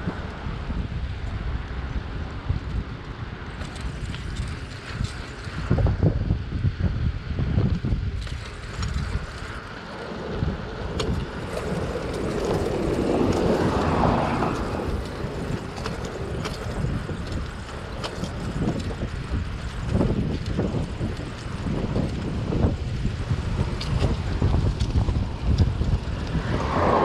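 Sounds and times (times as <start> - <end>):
bicycle tyre road noise: 0.0 - 27.0
wind buffeting microphone: 0.0 - 27.0
pickup truck passing: 9.6 - 17.5, 25.8 - 27.0.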